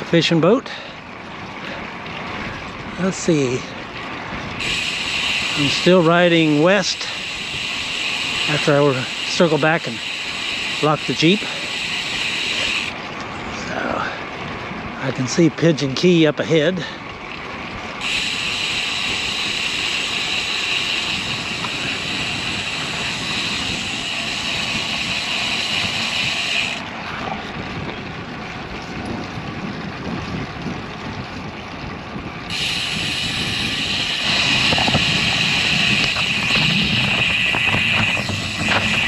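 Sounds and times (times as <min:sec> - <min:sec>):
bicycle tyre noise: 0:00.0 - 0:14.9, 0:16.8 - 0:39.0
wind rush: 0:20.3 - 0:39.0.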